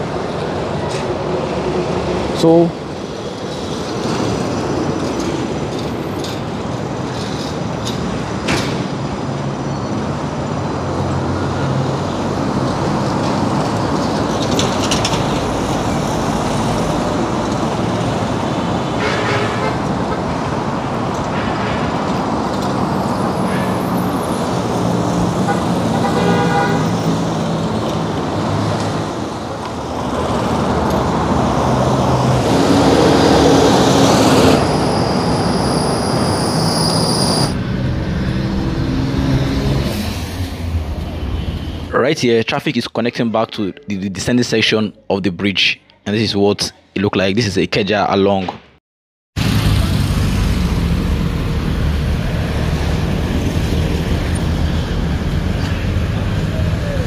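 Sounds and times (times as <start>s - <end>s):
road traffic passing: 0.0s - 42.4s, 49.4s - 57.0s
vehicle horn toot: 19.0s - 20.3s, 25.5s - 27.0s.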